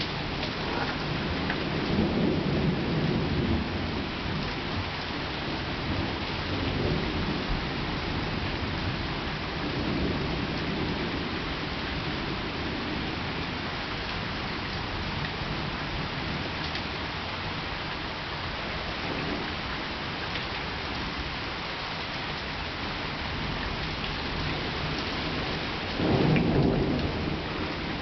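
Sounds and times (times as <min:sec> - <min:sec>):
thunder rumbling: 0:00.0 - 0:13.6, 0:23.1 - 0:28.0
heavy rain pattering: 0:00.0 - 0:28.0.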